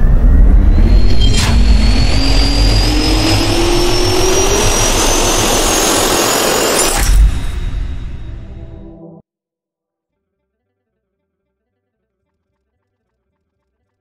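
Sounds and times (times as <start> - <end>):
jet turbine spooling up: 0.0 - 9.0
rushing air: 0.0 - 9.0
sharp hit: 0.0 - 9.2.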